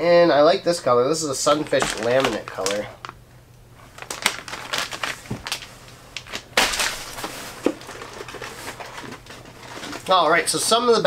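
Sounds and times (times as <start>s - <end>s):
plastic bags crinkling: 1.3s - 3.2s, 3.8s - 10.4s.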